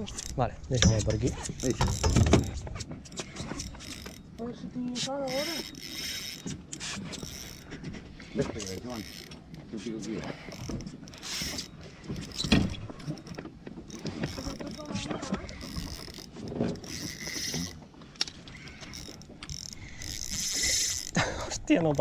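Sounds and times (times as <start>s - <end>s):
fishing reel drag buzzing: 0.0s - 17.8s, 18.4s - 22.0s
knocks of handling in boat: 0.7s - 5.3s, 6.4s - 18.2s.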